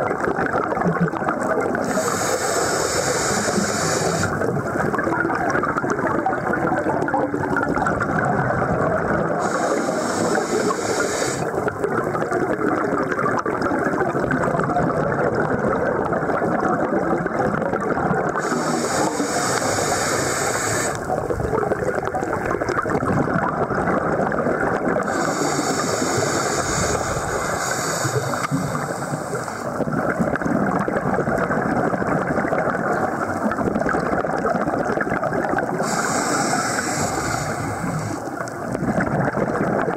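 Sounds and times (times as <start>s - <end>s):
underwater rushing and gurgling: 0.0s - 39.9s
scuba breathing hiss: 1.8s - 4.5s, 9.4s - 11.6s, 18.4s - 21.1s, 25.0s - 29.8s, 35.8s - 38.4s.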